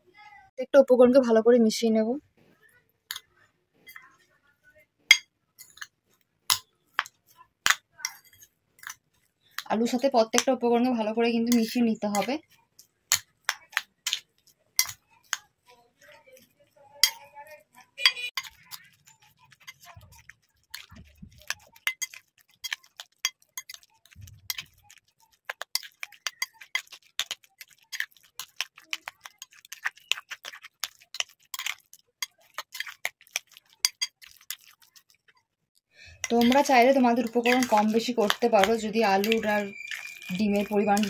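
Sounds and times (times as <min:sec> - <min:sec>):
fingers tapping glass bowl: 0:36.2 - 0:41.0.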